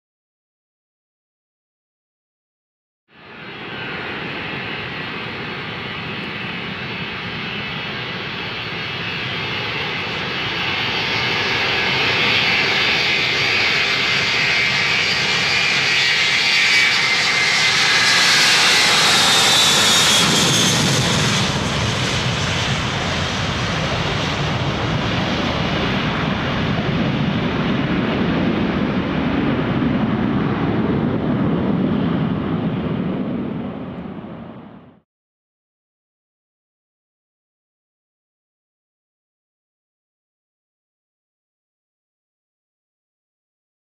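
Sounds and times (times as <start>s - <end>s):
jet engines roaring at takeoff: 3.1s - 35.0s
high jet whine: 3.2s - 35.0s.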